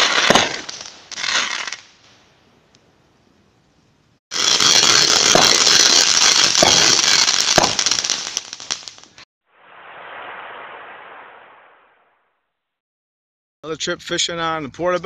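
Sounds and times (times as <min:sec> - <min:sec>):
sharp firework bangs: 0:00.0 - 0:01.8, 0:04.3 - 0:08.9
fireworks crackling: 0:00.0 - 0:02.1, 0:04.3 - 0:12.0
soft rush of noise: 0:09.6 - 0:12.1.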